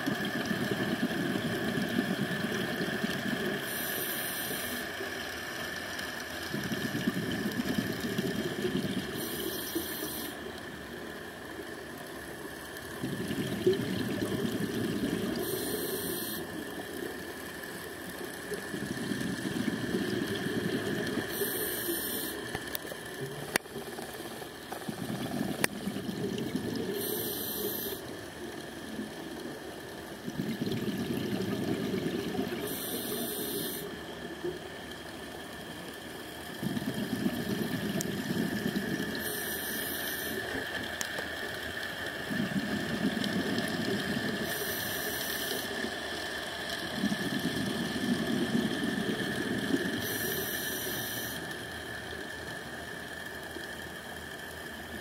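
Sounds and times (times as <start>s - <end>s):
exhaust bubbling underwater: 0.0s - 3.8s, 6.5s - 10.4s, 12.8s - 34.0s, 36.5s - 39.4s, 42.0s - 44.8s, 45.6s - 50.6s
scuba regulator inhale hiss: 3.6s - 5.0s, 9.1s - 10.4s, 15.4s - 16.6s, 20.4s - 22.5s, 26.8s - 28.1s, 32.6s - 34.0s, 39.2s - 40.6s, 44.2s - 45.9s, 48.1s - 51.6s.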